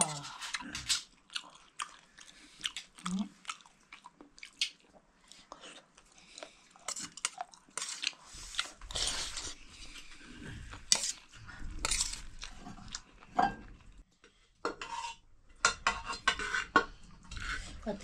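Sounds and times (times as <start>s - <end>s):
dishes and utensils clinking: 14.6s - 17.0s.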